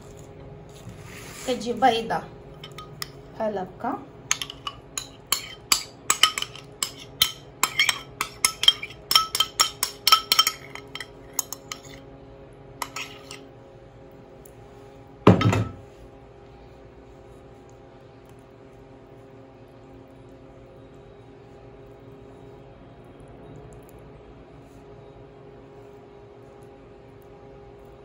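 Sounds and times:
metal spoon clinking ceramic bowl: 2.6s - 3.2s, 4.3s - 12.0s, 12.8s - 13.4s.

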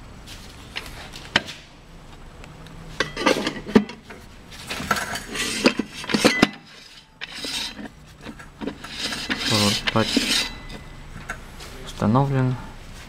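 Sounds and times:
metal clinking and scraping: 2.9s - 11.4s
metal rattling: 3.0s - 11.3s.

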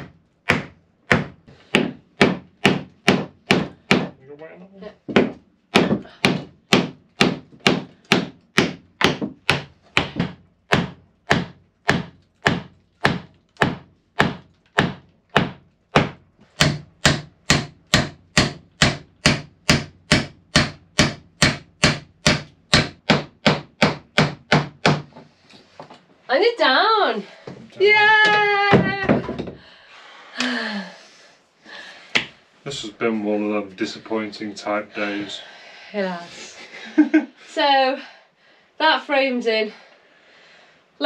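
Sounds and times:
hammer knocking wooden block: 0.0s - 4.2s, 5.1s - 25.2s.

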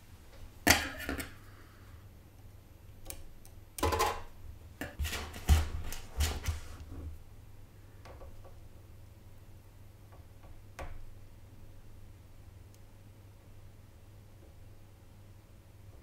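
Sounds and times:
small hard clicks and knocks: 3.0s - 6.6s.

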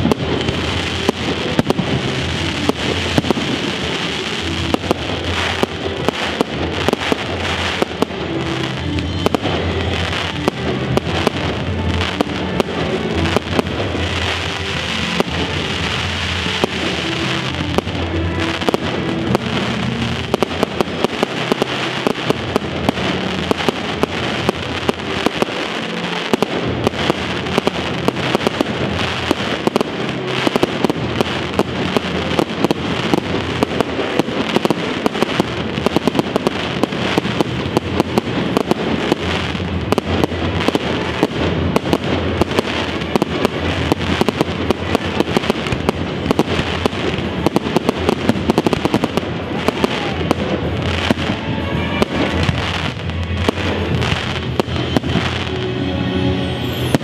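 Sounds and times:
fireworks bangs and crackles: 0.0s - 57.0s.

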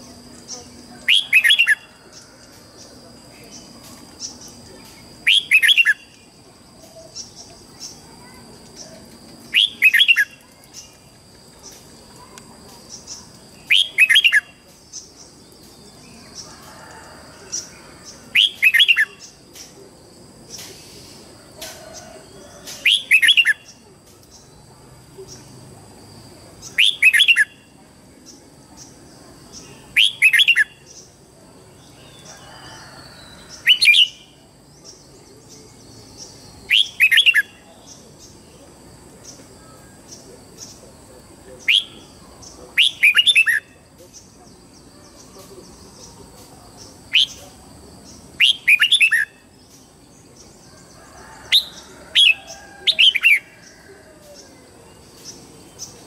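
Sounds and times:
bird singing whistled phrases: 5.2s - 6.1s, 9.5s - 10.4s.

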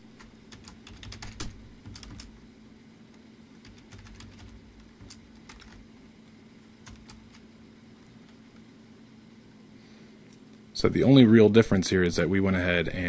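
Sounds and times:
faint low hum: 0.0s - 13.0s
typing on computer keyboard: 0.2s - 2.3s, 3.6s - 5.8s, 6.8s - 7.4s.

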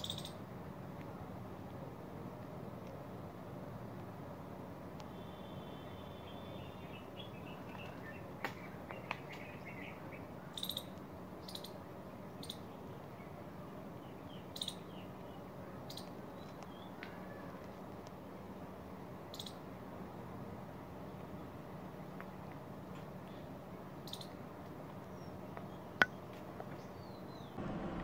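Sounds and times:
small animals chirping: 0.0s - 0.4s, 10.5s - 11.8s
steady background hiss: 0.0s - 28.0s.

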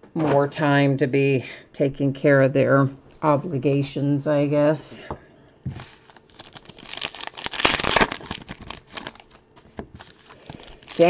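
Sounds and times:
card packaging crinkling: 5.8s - 11.0s.

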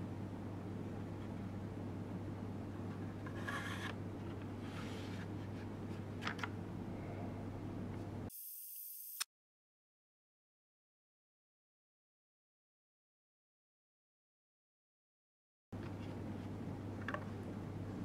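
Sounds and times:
steady low hum: 0.0s - 3.3s, 3.9s - 8.5s, 15.8s - 18.0s
brief hiss: 8.3s - 9.3s.

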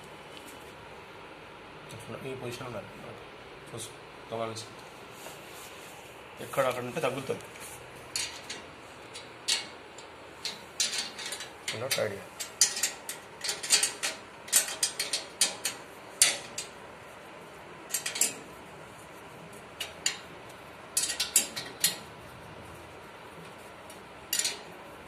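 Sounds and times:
spanner clinking on metal: 8.1s - 16.8s, 17.9s - 18.5s, 19.8s - 20.3s, 21.0s - 22.1s, 23.9s - 24.8s.

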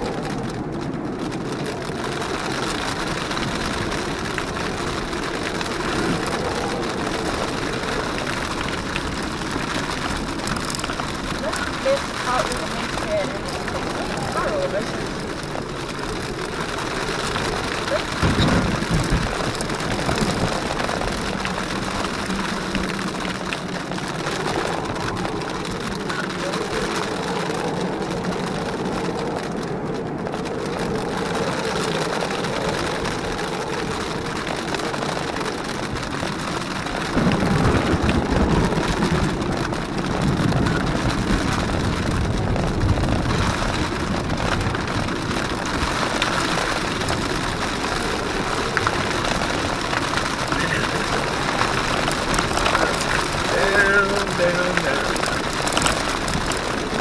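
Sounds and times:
rain hissing: 0.0s - 57.0s
car engine running: 39.1s - 57.0s.

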